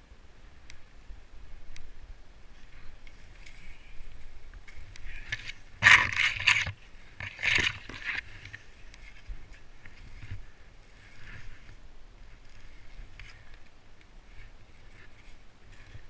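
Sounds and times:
skis sliding through snow: 2.5s - 13.6s, 14.2s - 16.0s
branches swishing against skier: 2.5s - 16.0s.

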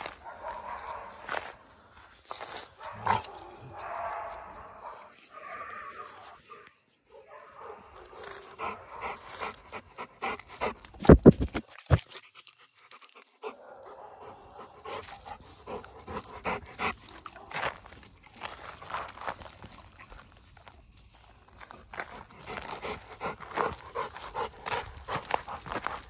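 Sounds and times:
dog breathing: 8.6s - 11.1s, 14.7s - 17.1s, 22.0s - 26.0s.

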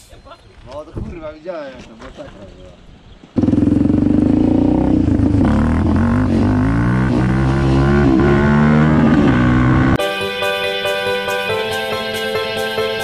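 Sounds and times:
quad bike engine revving: 3.4s - 10.0s.

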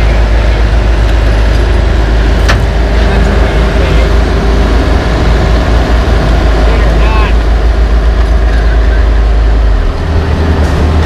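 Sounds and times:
heavy diesel engines running: 0.0s - 11.0s.

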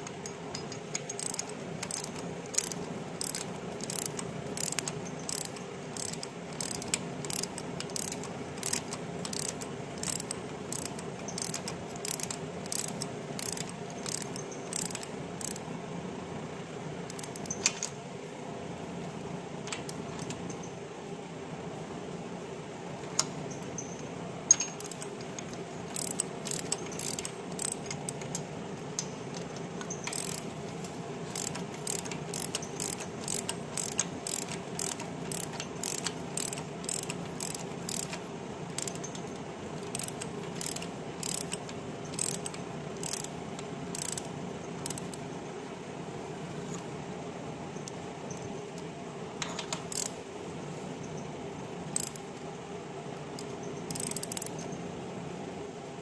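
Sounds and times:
steady background hum: 0.0s - 56.0s
ratchet wrench clicking: 0.5s - 15.7s, 17.1s - 17.9s, 24.5s - 28.4s, 29.0s - 30.5s, 31.3s - 39.2s, 39.8s - 45.2s, 49.5s - 50.2s, 52.0s - 52.3s, 53.4s - 54.7s.

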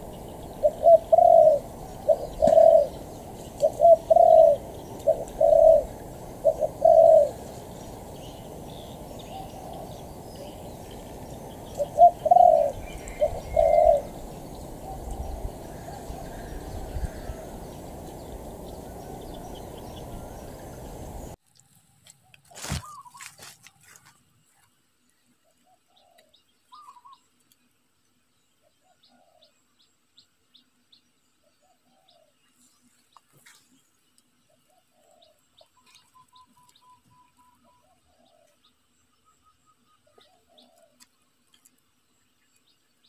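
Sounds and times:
dove cooing: 0.0s - 21.4s.

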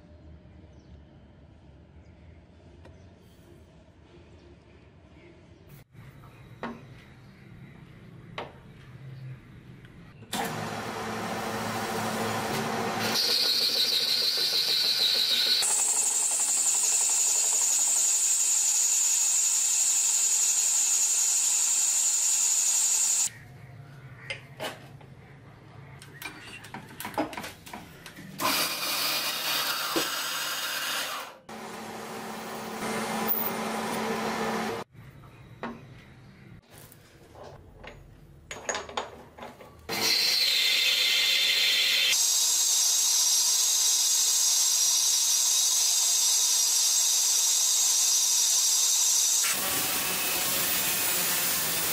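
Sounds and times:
metal lathe cutting whine: 12.7s - 23.3s, 39.9s - 51.9s.

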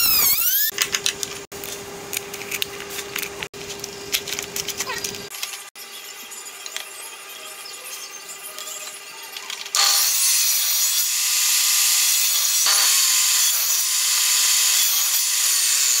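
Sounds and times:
table saw cutting wood: 9.8s - 16.0s.

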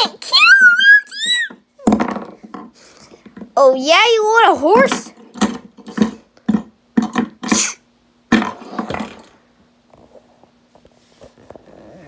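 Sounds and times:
faint handling sounds: 9.8s - 12.0s.

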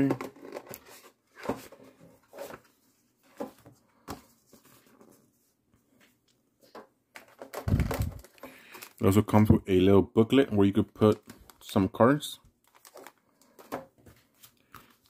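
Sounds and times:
paper rustling: 0.4s - 9.2s, 12.6s - 15.0s.

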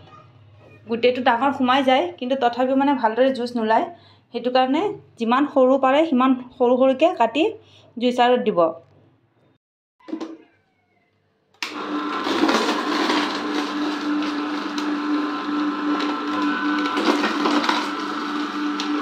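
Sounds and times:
juicer motor humming: 11.6s - 19.0s
vegetables cracking in juicer: 11.6s - 19.0s.

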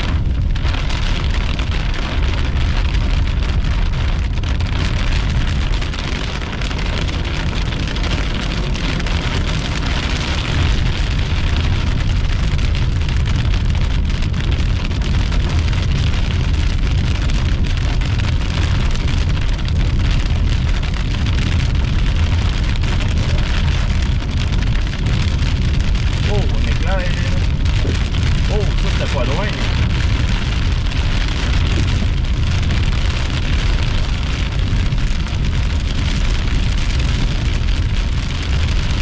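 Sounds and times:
heavy rain falling: 0.0s - 39.0s.

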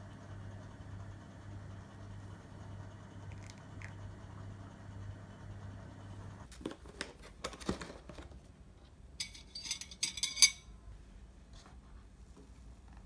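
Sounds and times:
cutlery clinking on plate: 9.2s - 10.7s.

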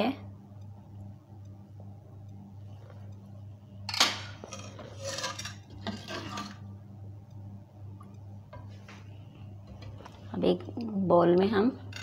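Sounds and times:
steady low hum: 0.0s - 12.0s
metal ladle scraping a pot: 4.4s - 6.6s.

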